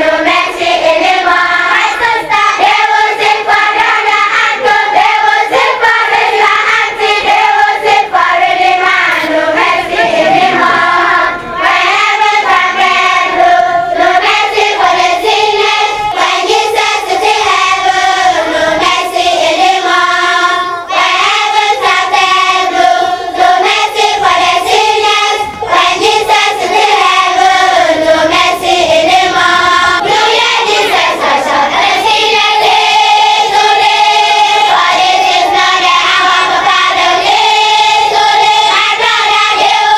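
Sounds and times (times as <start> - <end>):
children's choir singing: 0.0 - 39.9.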